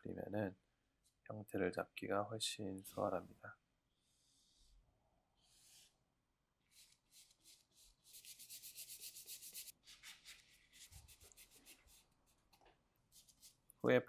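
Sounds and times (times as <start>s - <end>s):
paper towel wiping canvas: 6.7s - 12.1s
brush scrubbing on canvas: 6.7s - 12.4s, 13.1s - 13.6s.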